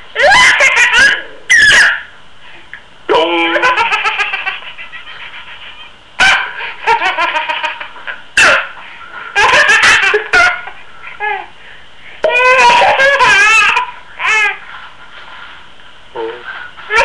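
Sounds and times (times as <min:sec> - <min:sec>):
baby laughing: 0:00.2 - 0:02.0, 0:03.4 - 0:08.7, 0:09.4 - 0:11.5, 0:12.2 - 0:14.6.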